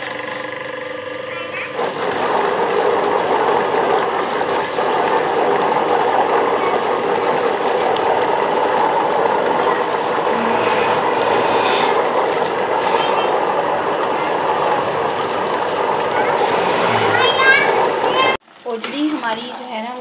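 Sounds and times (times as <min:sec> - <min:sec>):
pot of water boiling: 0:00.0 - 0:20.0.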